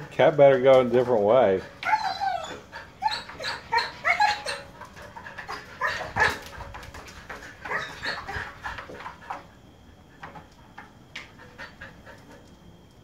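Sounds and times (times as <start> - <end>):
dog whining and yipping: 1.7 - 6.6, 7.6 - 8.8.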